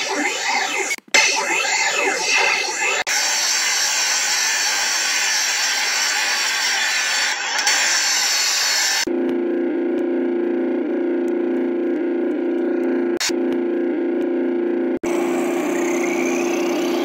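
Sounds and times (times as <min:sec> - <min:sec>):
distorted dense electronic noise: 0:00.0 - 0:05.8.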